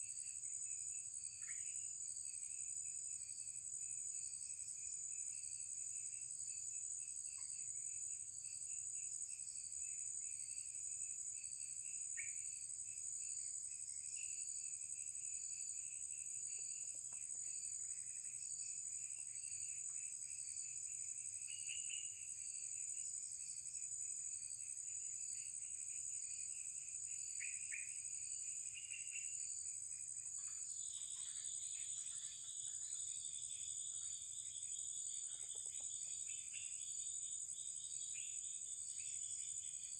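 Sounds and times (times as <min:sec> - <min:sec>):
high-pitched insects droning: 0:00.0 - 0:39.9
lower insect drone: 0:00.0 - 0:39.9
short insect chirps: 0:12.2 - 0:12.5, 0:27.1 - 0:39.9.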